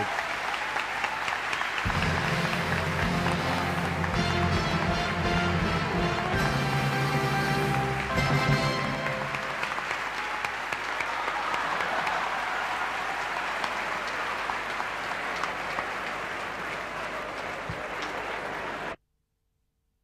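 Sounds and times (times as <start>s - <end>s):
audience applauding: 0.0s - 19.0s
music: 1.8s - 9.9s.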